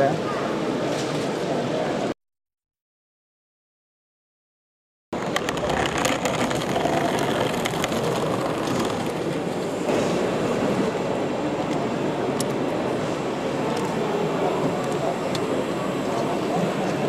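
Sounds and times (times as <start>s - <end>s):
hall background noise: 5.2s - 17.0s
model trains running rumble: 5.2s - 17.0s.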